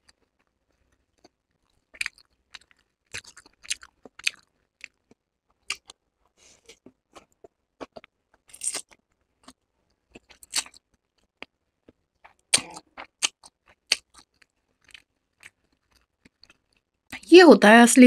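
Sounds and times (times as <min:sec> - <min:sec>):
wet chewing smacks: 0:06.7 - 0:08.1, 0:08.7 - 0:17.2.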